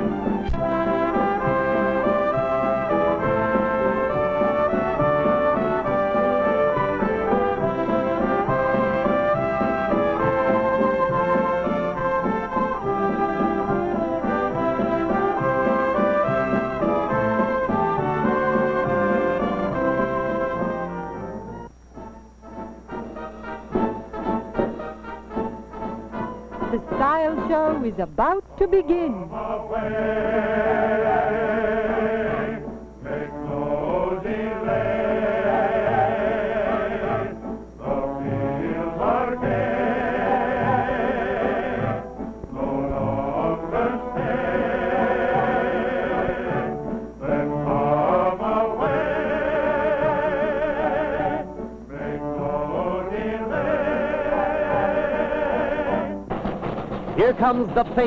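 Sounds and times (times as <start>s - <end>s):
musical accompaniment: 0.0s - 58.0s
voices singing with vibrato: 28.6s - 56.3s.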